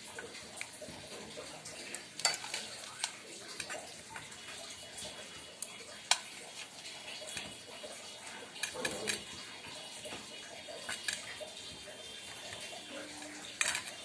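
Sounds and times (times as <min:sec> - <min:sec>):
light clicks against metal dish: 0:13.2 - 0:14.0.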